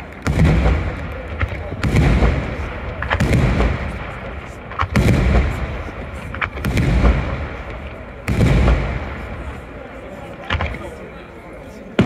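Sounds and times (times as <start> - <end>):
firework shells bursting: 0.0 - 9.6.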